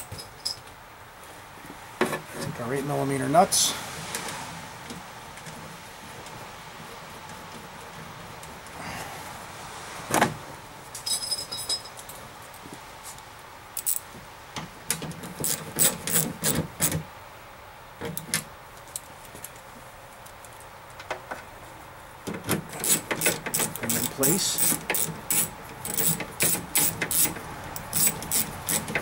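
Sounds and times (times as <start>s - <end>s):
ratchet clicking: 15.4s - 17.0s, 22.7s - 29.0s.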